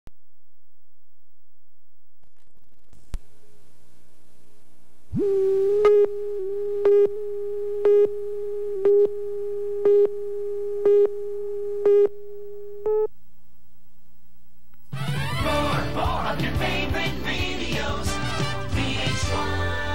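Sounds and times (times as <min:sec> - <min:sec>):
faint low hum: 0:00.1 - 0:15.0
steady electronic tone: 0:05.1 - 0:13.1.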